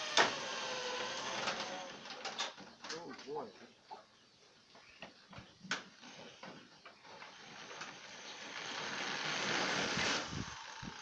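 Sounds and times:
drill grinding through sheet metal: 0:00.0 - 0:02.1, 0:07.3 - 0:11.0.

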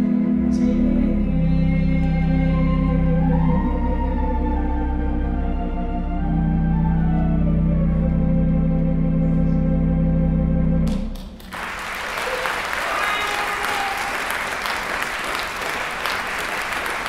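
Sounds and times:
theatre organ chord: 0:00.0 - 0:11.4
audience applause: 0:11.2 - 0:17.0
audience cheering: 0:11.5 - 0:17.0.

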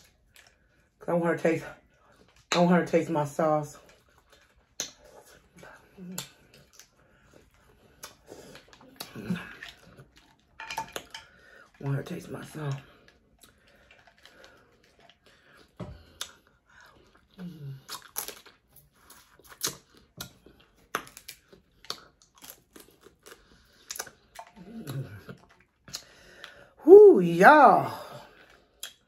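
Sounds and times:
crab shell cracking: 0:17.8 - 0:24.6
person murmuring: 0:26.8 - 0:28.1.

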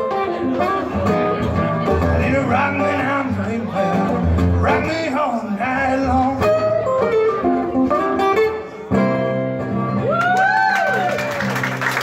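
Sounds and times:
blues acoustic guitar: 0:00.0 - 0:12.0.

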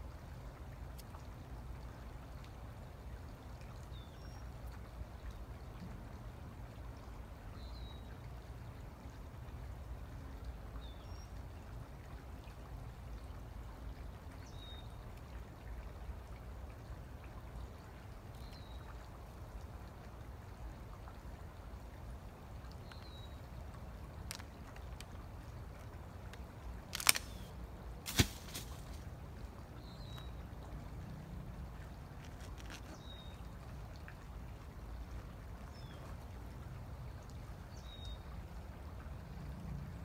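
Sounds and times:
outdoor hiss: 0:26.6 - 0:29.2.

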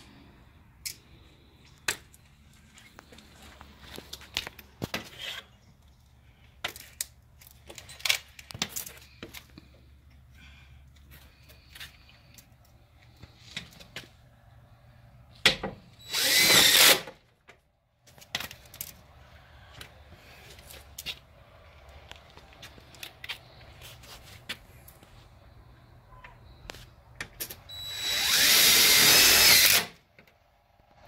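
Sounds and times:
cordless drill driving screw: 0:16.0 - 0:17.2, 0:27.6 - 0:30.0.

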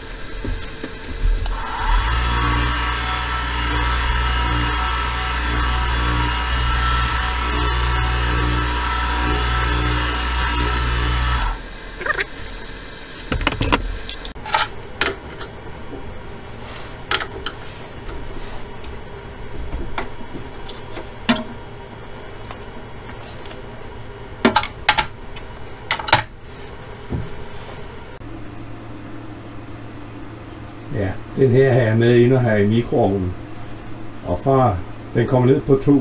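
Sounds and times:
wood lathe running: 0:01.0 - 0:14.4
knocks and clicks of metal and wood: 0:13.3 - 0:15.2.

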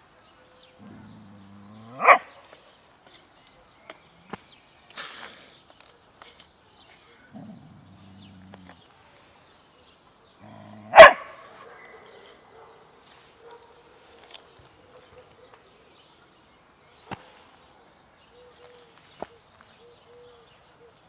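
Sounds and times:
dog growling low: 0:00.8 - 0:02.1, 0:07.3 - 0:08.9, 0:10.4 - 0:11.0
dog barking sharply: 0:02.0 - 0:02.3, 0:10.9 - 0:11.9.

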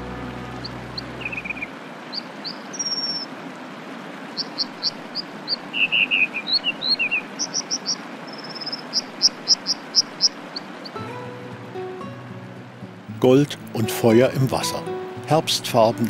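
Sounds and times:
bird singing high notes: 0:00.0 - 0:03.3
river rushing: 0:00.0 - 0:16.0.

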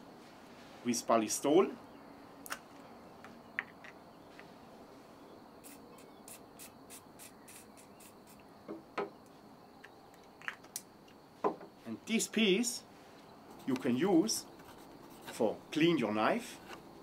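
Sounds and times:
aerosol can spraying short hisses: 0:05.6 - 0:08.4.

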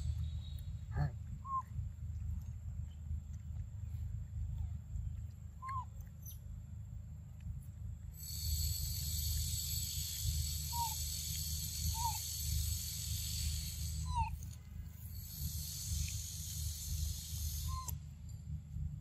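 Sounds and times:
high-pitched insect drone: 0:08.2 - 0:14.3.

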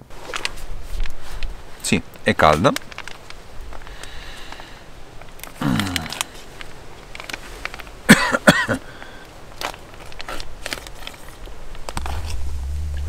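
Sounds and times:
foil pouch crinkling: 0:02.7 - 0:04.6, 0:09.0 - 0:12.4.

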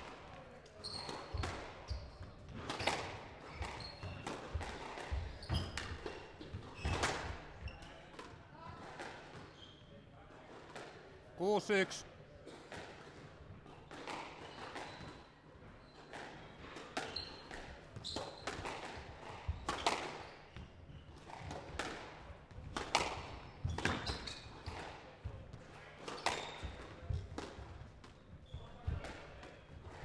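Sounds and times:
shoes squeaking on wooden floor: 0:00.8 - 0:08.0, 0:14.4 - 0:18.6, 0:23.5 - 0:24.8
squash ball hits: 0:01.0 - 0:07.5, 0:16.1 - 0:20.6, 0:21.2 - 0:30.0.

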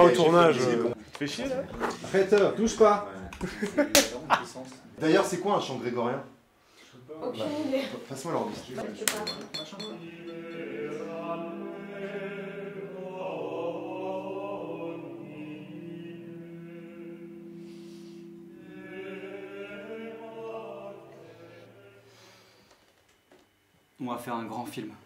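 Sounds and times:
low voices chanting together: 0:09.8 - 0:22.6.

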